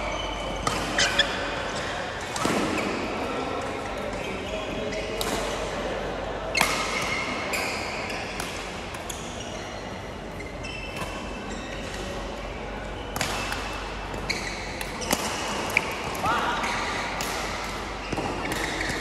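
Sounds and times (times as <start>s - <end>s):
shoes squeaking on court: 0.1s - 2.1s, 9.1s - 12.0s, 12.9s - 15.2s
racket hitting shuttlecock: 13.1s - 19.0s.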